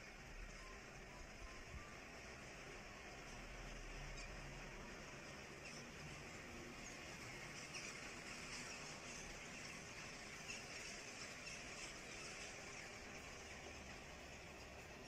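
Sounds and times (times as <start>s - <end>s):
steady background hiss: 0.0s - 15.0s
flock of birds calling overhead: 4.0s - 15.0s.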